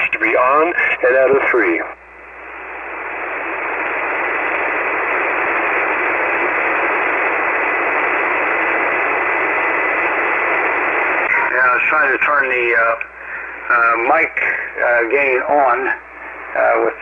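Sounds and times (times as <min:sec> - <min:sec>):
radio band noise hiss: 0:00.0 - 0:17.0.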